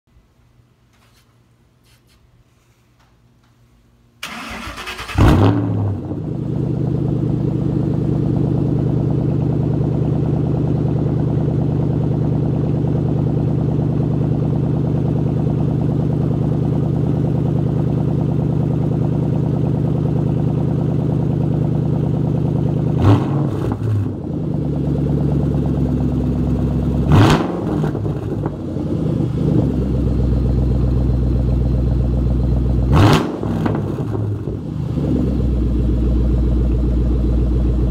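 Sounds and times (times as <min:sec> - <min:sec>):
engine revving: 0:04.3 - 0:07.0, 0:22.9 - 0:24.2, 0:27.0 - 0:30.0, 0:32.9 - 0:35.8
car engine idling: 0:05.8 - 0:23.0, 0:23.8 - 0:37.9.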